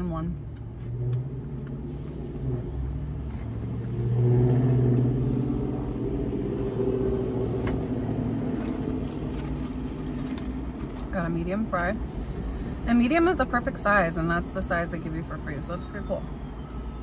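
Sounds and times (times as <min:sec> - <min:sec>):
car engine running: 0:00.0 - 0:12.8.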